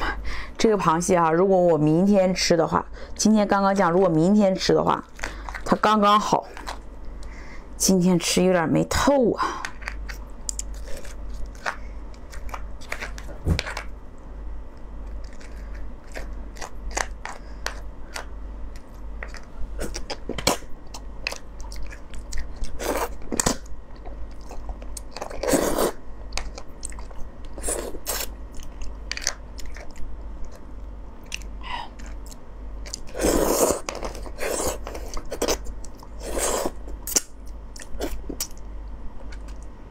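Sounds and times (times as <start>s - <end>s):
crunching and chewing: 9.7s - 13.9s, 15.0s - 39.8s.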